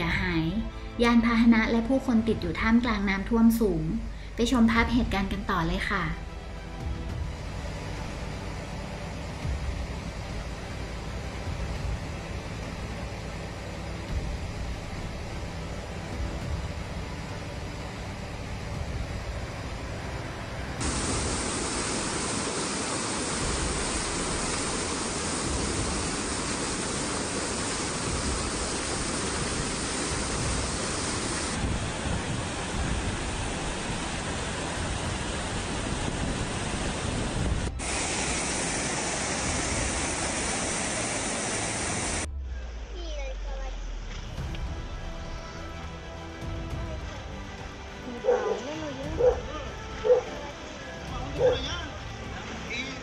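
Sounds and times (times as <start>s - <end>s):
floodwater rushing: 17.2s - 42.3s, 44.4s - 53.0s.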